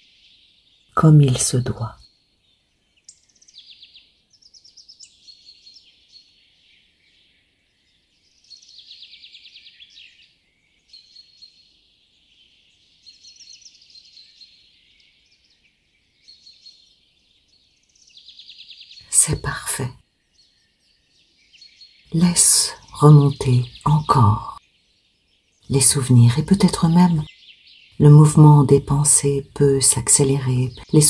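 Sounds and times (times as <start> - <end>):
songbirds trilling and chirping: 0.0 - 31.0.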